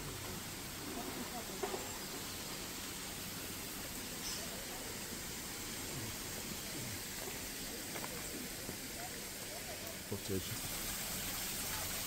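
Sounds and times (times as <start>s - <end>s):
faint distant voices: 0.0s - 12.0s
outdoor ambience hiss: 0.0s - 12.0s.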